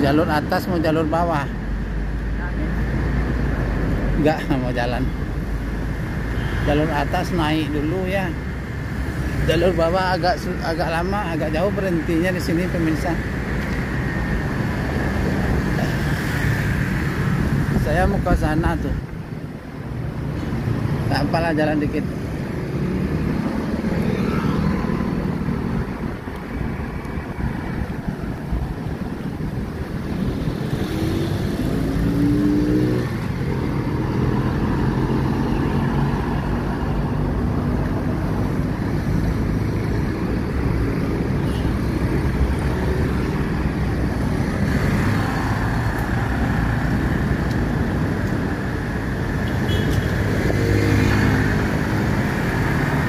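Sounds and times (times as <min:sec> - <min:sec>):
road traffic rumble: 0:00.0 - 0:53.0
motor scooter passing: 0:22.9 - 0:25.8
vehicle accelerating: 0:29.9 - 0:41.3.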